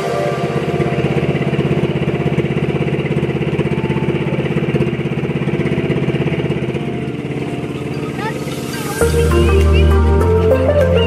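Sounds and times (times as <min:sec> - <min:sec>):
boat engine chugging: 0:00.0 - 0:11.0.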